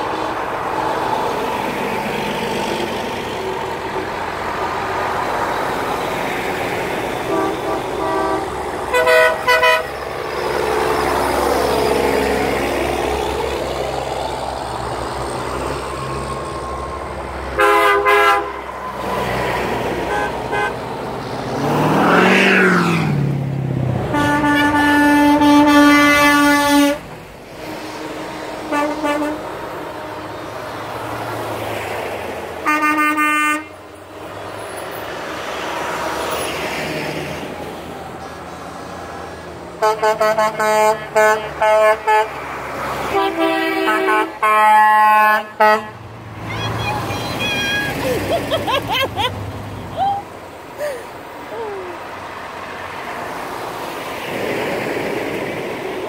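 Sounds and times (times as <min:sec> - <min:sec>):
trucks driving past: 0:00.0 - 0:56.0
truck horn blasts: 0:07.1 - 0:11.6, 0:17.5 - 0:18.8, 0:19.9 - 0:20.8, 0:24.0 - 0:30.4, 0:32.6 - 0:33.8, 0:39.8 - 0:42.4, 0:43.0 - 0:48.0.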